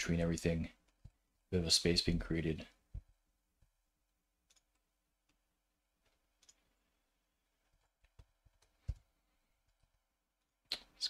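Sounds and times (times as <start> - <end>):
mouse and keyboard clicks: 4.5 - 5.4, 6.4 - 6.7.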